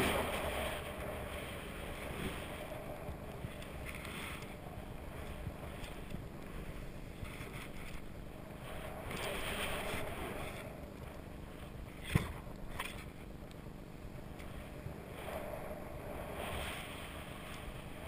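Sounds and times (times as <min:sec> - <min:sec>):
snowboard sliding through powder: 0:00.0 - 0:07.2, 0:08.0 - 0:11.0, 0:14.6 - 0:18.0
wind buffeting microphone: 0:00.0 - 0:18.0.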